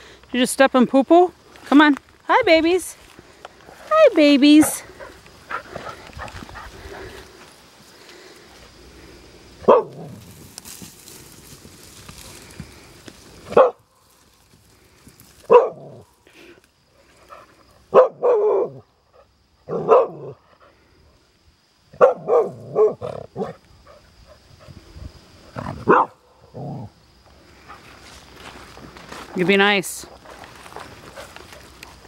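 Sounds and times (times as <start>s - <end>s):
dog barking: 9.6s - 10.1s, 13.5s - 13.8s, 15.5s - 16.0s, 17.9s - 18.8s, 19.7s - 20.4s, 21.9s - 23.6s, 25.8s - 26.2s.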